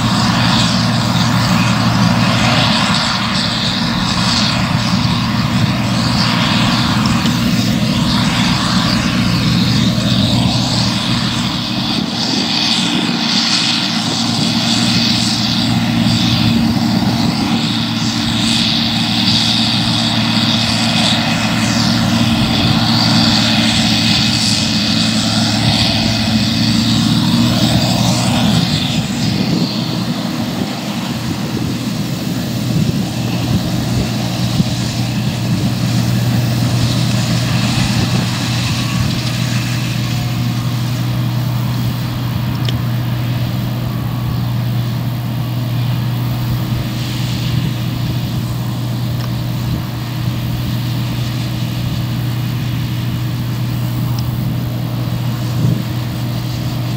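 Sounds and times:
combine harvester engine and threshing: 0:00.0 - 0:56.9.

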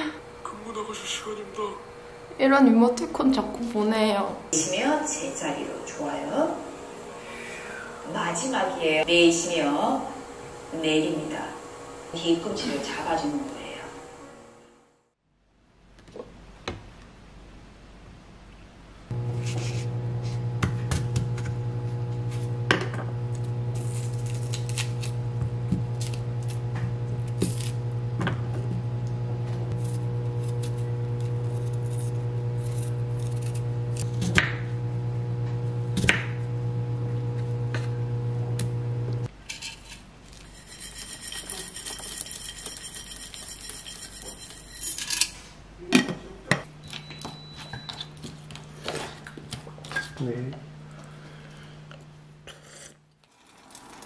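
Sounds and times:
steady low hum: 0:00.0 - 0:53.2
wooden spoon scraping wooden bowl: 0:19.3 - 0:20.5, 0:29.7 - 0:34.3, 0:39.6 - 0:44.7.

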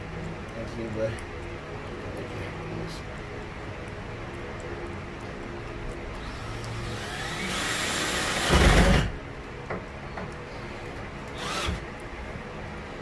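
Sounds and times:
cordless drill driving screw: 0:06.3 - 0:09.1, 0:11.3 - 0:11.8.

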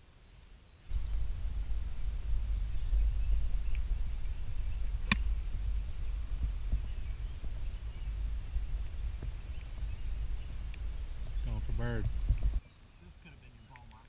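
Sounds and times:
golf club striking ball: 0:04.8 - 0:05.6.

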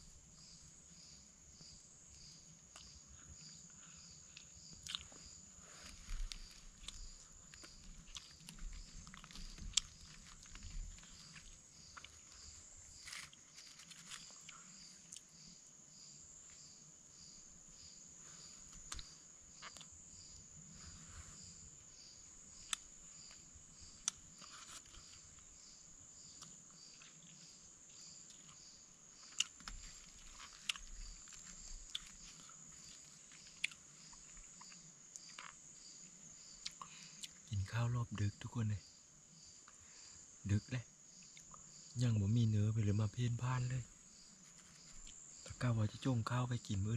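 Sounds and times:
night insects buzzing and chirping: 0:00.0 - 0:46.9
food being chewed: 0:02.7 - 0:15.3, 0:18.7 - 0:19.9, 0:22.6 - 0:25.5, 0:26.3 - 0:37.5.

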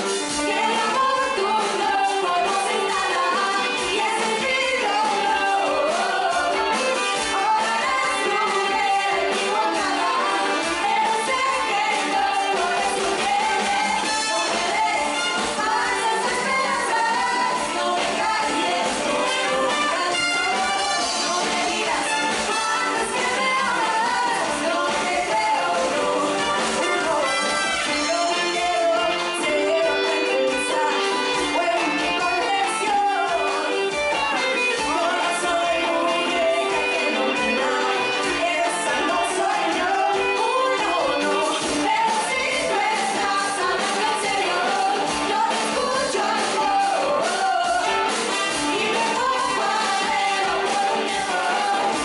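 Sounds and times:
live band playing: 0:00.0 - 0:52.0
women singing: 0:00.0 - 0:52.0.

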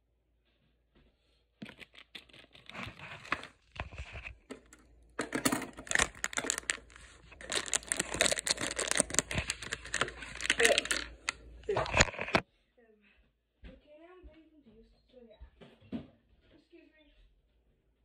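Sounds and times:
plastic film crinkling: 0:01.6 - 0:12.4
packaging being torn open: 0:05.6 - 0:12.4.

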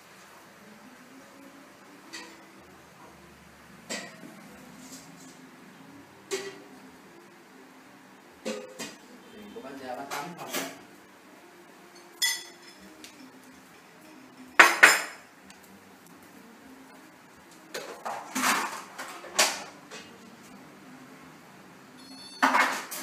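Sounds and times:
hard objects clattering: 0:17.8 - 0:20.2
small ringing clink: 0:22.0 - 0:22.5.

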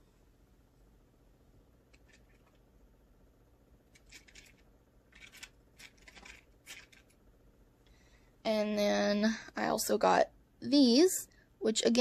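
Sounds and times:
packaging rustling: 0:04.0 - 0:07.1.

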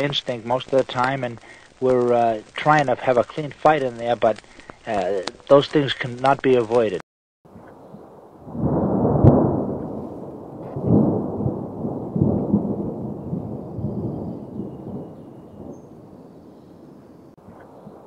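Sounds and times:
sharp crack: 0:00.0 - 0:07.0, 0:08.4 - 0:12.5.

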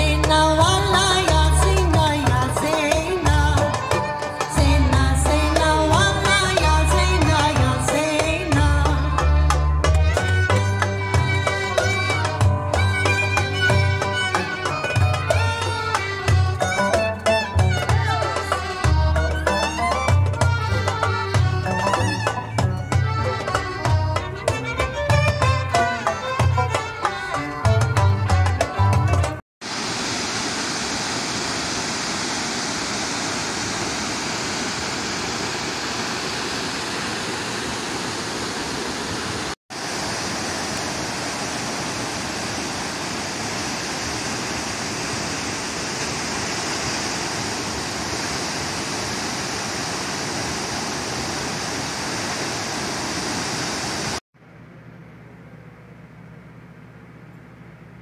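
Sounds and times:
static hiss: 0:29.6 - 0:54.2.

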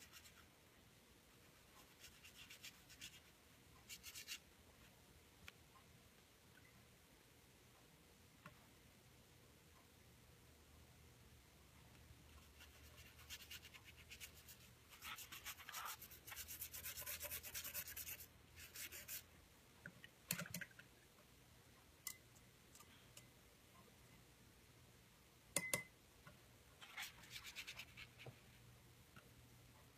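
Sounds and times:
paintbrush scratching on paper: 0:00.0 - 0:00.5, 0:01.4 - 0:04.4, 0:12.3 - 0:19.3, 0:26.8 - 0:28.6.

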